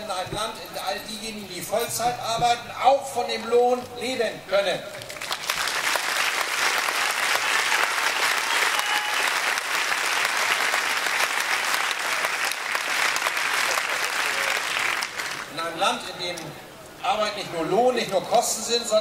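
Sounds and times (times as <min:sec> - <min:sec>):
crowd applauding: 0:04.9 - 0:15.6.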